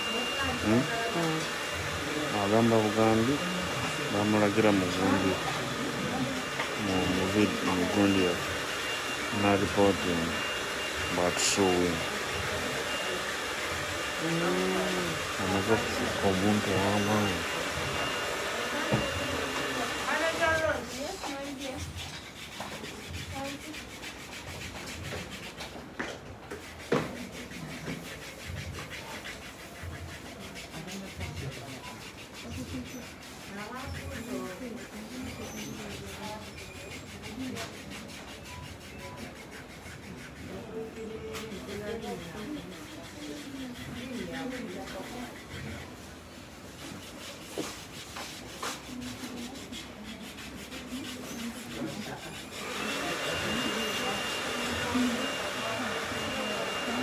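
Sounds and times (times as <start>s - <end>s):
hair rasping and rubbing: 0.0s - 57.0s
hair rasping with crochet hook: 46.9s - 57.0s.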